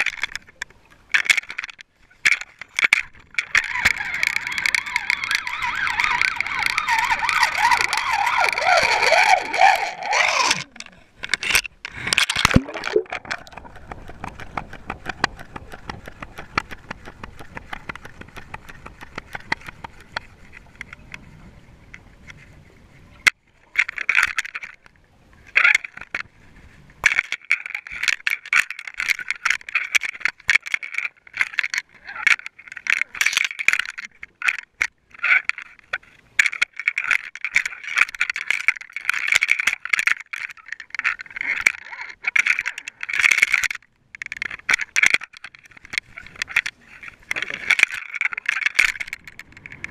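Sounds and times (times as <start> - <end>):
rattling and scraping clicks: 0.0 - 21.1, 27.0 - 49.9
warbling underwater sound: 3.4 - 11.0, 12.0 - 19.6.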